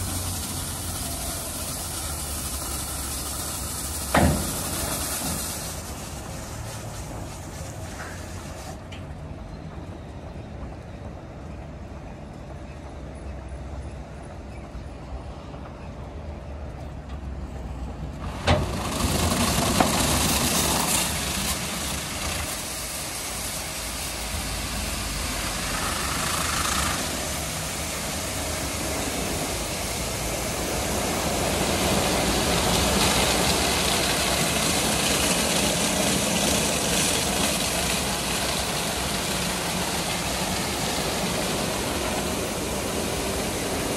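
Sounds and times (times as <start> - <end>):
rushing water spray: 0.0 - 8.9, 18.2 - 43.9
low machine hum: 0.0 - 43.9
rotating wash brushes: 18.5 - 43.9.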